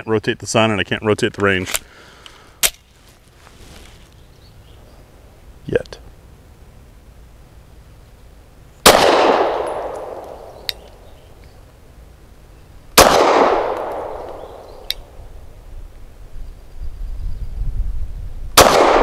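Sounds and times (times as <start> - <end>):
pistol shots echoing: 8.8 - 11.1, 13.0 - 15.2, 18.6 - 19.0
faint sharp tick: 13.8 - 15.1.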